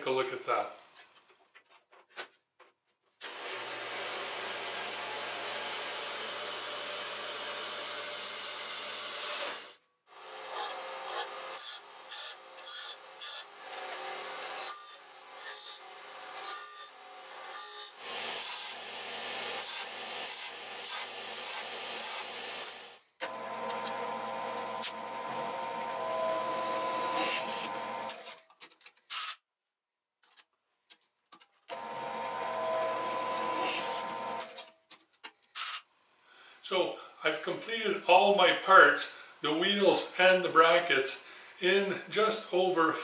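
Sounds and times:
bandsaw cutting metal: 3.2 - 28.4, 31.7 - 34.6
bench grinder grinding bursts: 3.2 - 28.4, 31.7 - 34.6
drill press whining: 20.9 - 28.4, 31.7 - 34.7.

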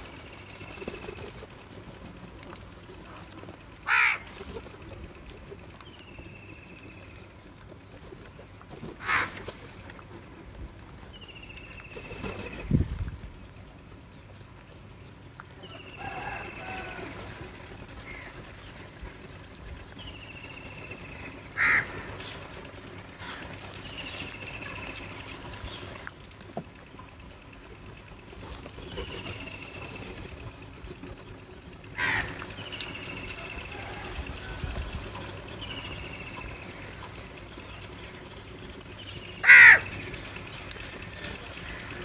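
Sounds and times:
crows harsh cawing: 3.8 - 4.4, 9.0 - 9.4, 21.6 - 22.2, 23.2 - 23.5, 32.0 - 32.4, 39.4 - 40.0.

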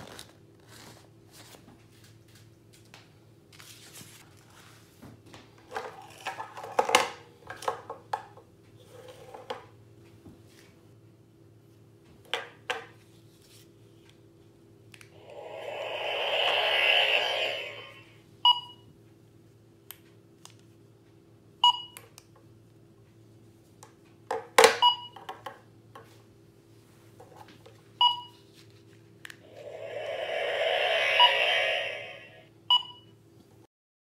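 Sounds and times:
electronic whooshing sound effect: 15.2 - 18.2, 29.4 - 32.5.

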